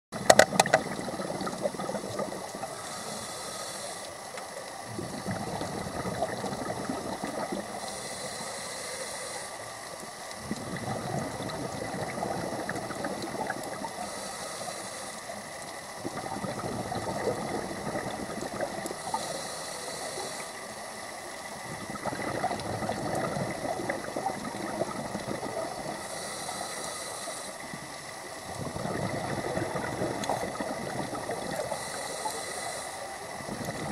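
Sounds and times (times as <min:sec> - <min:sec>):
exhaust bubbles burbling: 0:00.2 - 0:02.8, 0:04.8 - 0:07.8, 0:10.4 - 0:14.0, 0:16.0 - 0:19.2, 0:21.6 - 0:26.1, 0:28.5 - 0:31.8, 0:33.4 - 0:33.9
regulator inhalation hiss: 0:02.1 - 0:04.7, 0:07.5 - 0:10.2, 0:13.7 - 0:16.0, 0:18.6 - 0:21.4, 0:25.6 - 0:28.2, 0:31.3 - 0:33.4.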